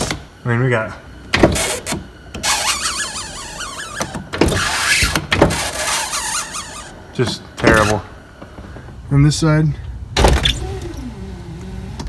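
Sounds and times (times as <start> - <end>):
window regulator clunks: 1.3 - 2.8
power window motor squealing: 1.5 - 7.0, 10.4 - 12.0.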